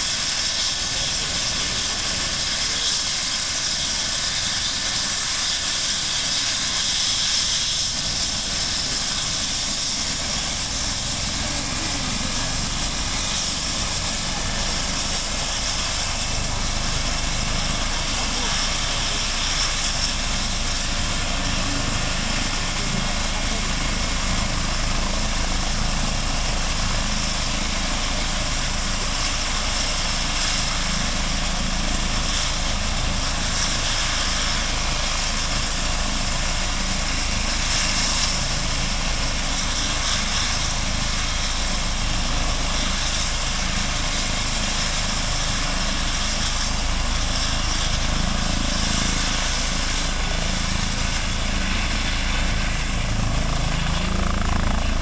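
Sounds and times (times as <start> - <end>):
helicopter rotor beat: 0.0 - 55.0
helicopter turbine whine: 0.0 - 55.0.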